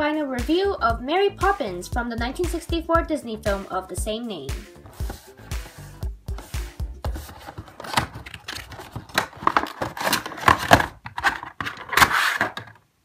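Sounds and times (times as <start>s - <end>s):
plastic and cardboard crinkling: 6.4s - 12.8s.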